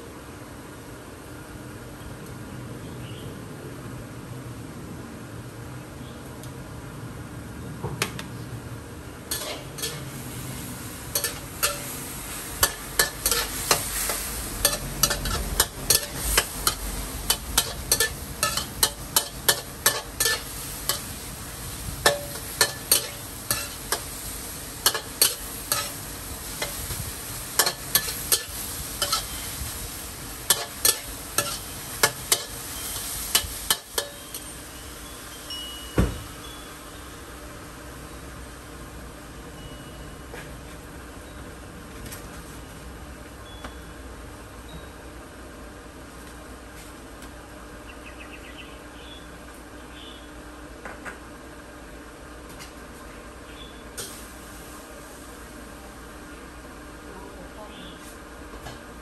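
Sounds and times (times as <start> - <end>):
food sizzling: 9.2 - 35.5
metal utensil scraping wok: 9.3 - 34.8.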